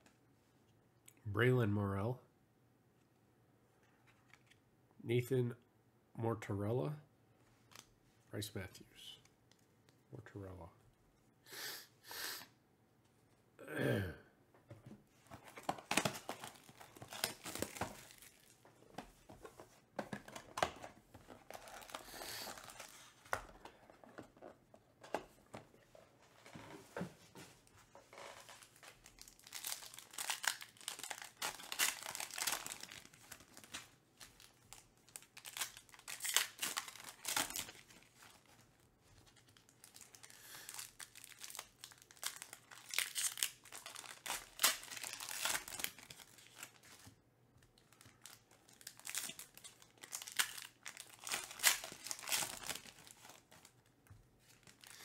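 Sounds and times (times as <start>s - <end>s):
foil wrappers crinkling: 15.4s - 18.6s, 21.3s - 23.3s, 28.4s - 47.1s, 47.8s - 53.8s.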